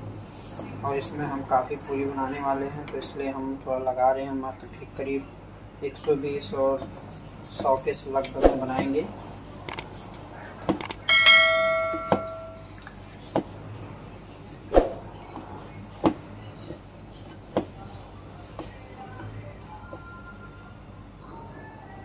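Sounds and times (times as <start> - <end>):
steel bowl ringing: 11.0 - 12.8.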